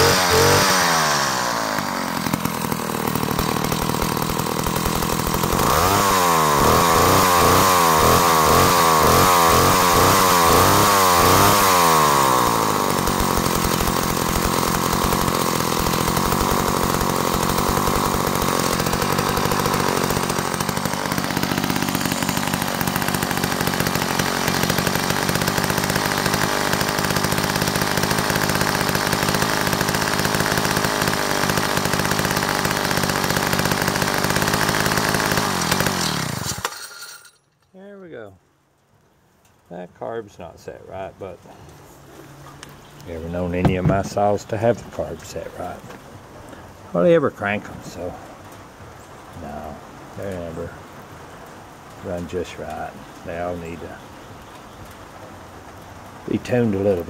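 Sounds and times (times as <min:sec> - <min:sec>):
chainsaw engine revving and idling: 0:00.0 - 0:37.2, 0:43.0 - 0:46.0, 0:49.4 - 0:50.8, 0:52.0 - 0:54.0, 0:56.3 - 0:57.0.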